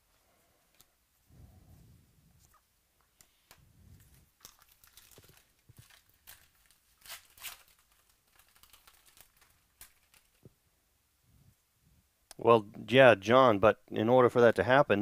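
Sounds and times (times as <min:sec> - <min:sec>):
foil wrapper tearing and crinkling: 0:04.4 - 0:10.4.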